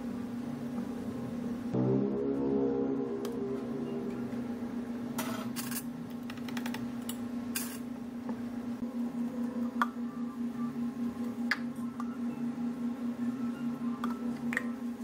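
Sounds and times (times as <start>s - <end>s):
low hum: 0.6s - 5.5s.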